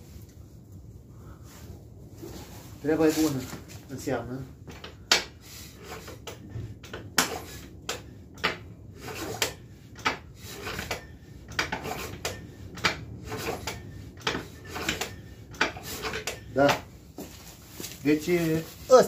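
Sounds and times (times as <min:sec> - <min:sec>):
metallic clicks and clanks: 0:06.2 - 0:16.9.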